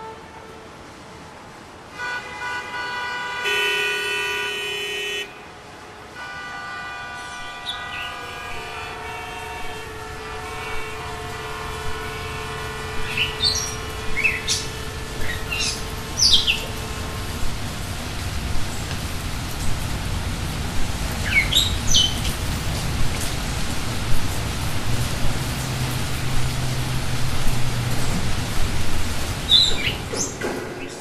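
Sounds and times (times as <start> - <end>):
birds chirping: 7.2 - 23.3, 28.6 - 31.0.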